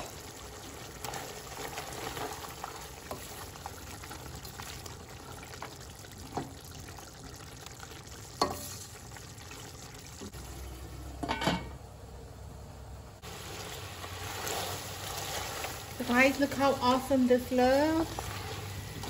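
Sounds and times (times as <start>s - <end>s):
curry sizzling in a pot: 0.0s - 11.4s, 13.2s - 19.0s
pot lid clattering: 11.2s - 11.8s.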